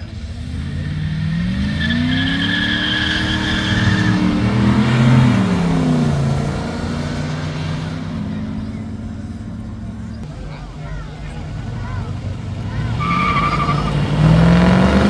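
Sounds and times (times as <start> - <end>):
car engine revving past: 0.0 - 9.4, 11.3 - 15.0
tyre squeal: 0.7 - 4.5, 12.8 - 14.2.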